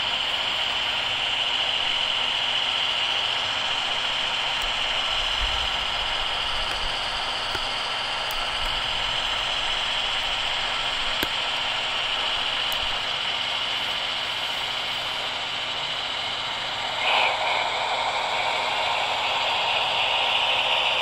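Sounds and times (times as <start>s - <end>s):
model train motor whirring: 0.0s - 21.0s.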